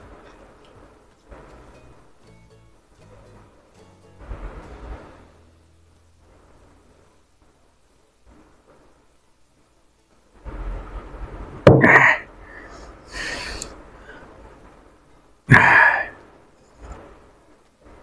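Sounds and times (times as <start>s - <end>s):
hissing breath out: 11.9s - 14.4s, 15.5s - 16.2s
man breathing heavily: 12.0s - 14.4s, 15.5s - 16.2s.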